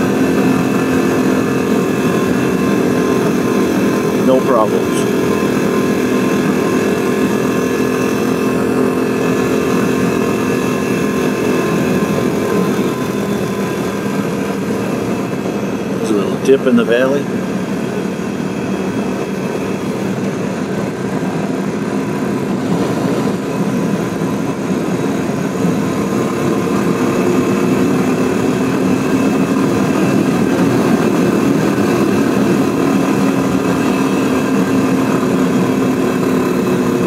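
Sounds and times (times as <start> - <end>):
motorcycle engine running: 0.0 - 37.0
wind rush on microphone: 17.2 - 37.0.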